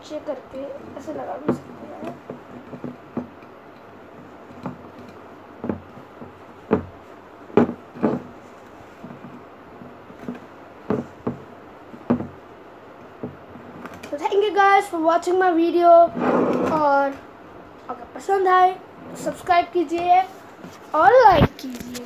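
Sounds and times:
vase knocking on tabletop: 5.6s - 8.3s, 10.2s - 12.4s.

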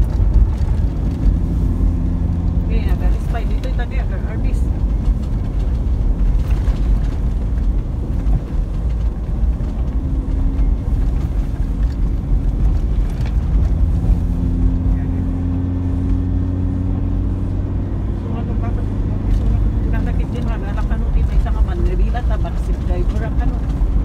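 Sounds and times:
car engine and road noise: 0.0s - 24.0s.

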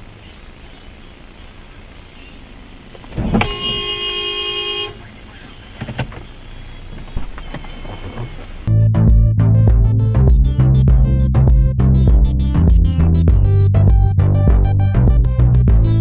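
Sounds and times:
road noise: 0.0s - 16.0s
car horn: 3.3s - 5.1s.

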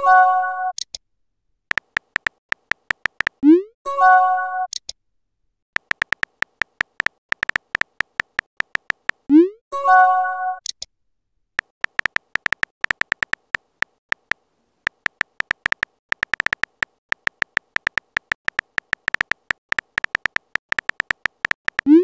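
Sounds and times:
keyboard typing clicks: 1.7s - 3.4s, 5.8s - 9.3s, 11.6s - 22.0s.

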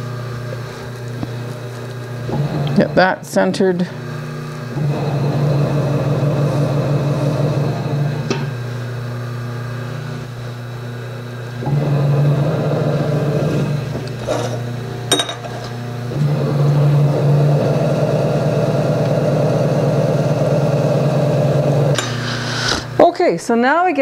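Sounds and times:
potter's wheel motor humming: 0.0s - 23.4s.

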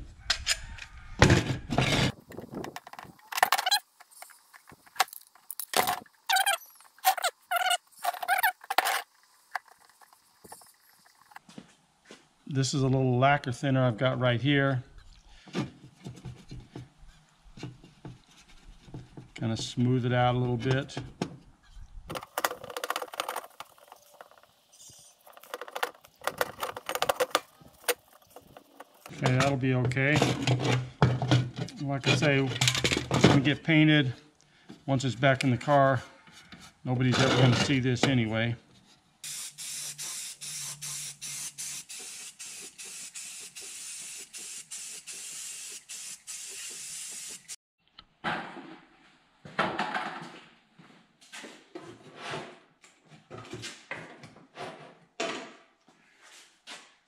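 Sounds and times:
spray paint hissing: 39.2s - 47.6s.

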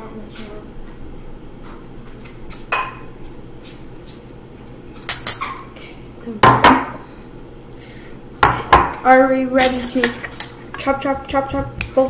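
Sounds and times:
metal utensils and dishes clinking: 9.5s - 10.9s.

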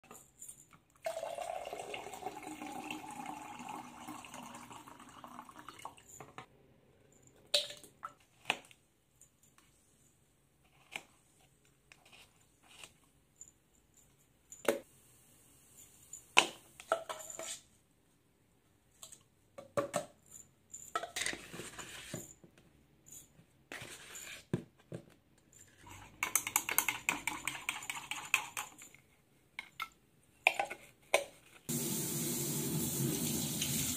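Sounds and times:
liquid pouring into cup: 1.0s - 6.0s
spoon stirring and clinking in cup: 25.8s - 30.8s.

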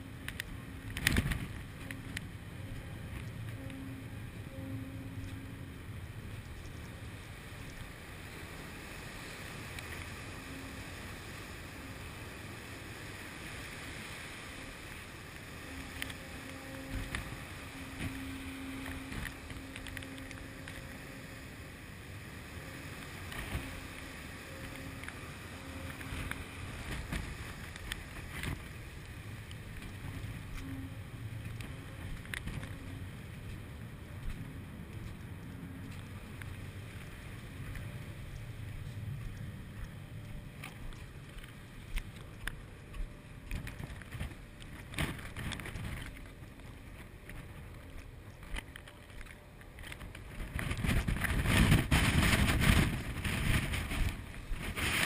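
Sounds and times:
faint on-off tone: 0.0s - 41.2s
churning sea: 0.0s - 55.0s
ship engine low hum: 0.0s - 55.0s
wind: 0.0s - 55.0s.

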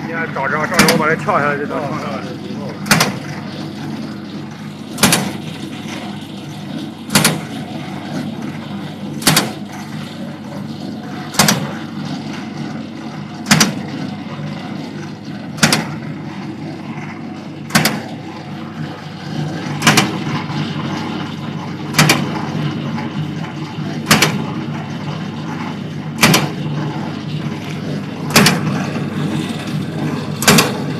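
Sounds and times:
machine motor hum: 0.0s - 30.9s
cutter clacking: 0.4s - 1.4s.

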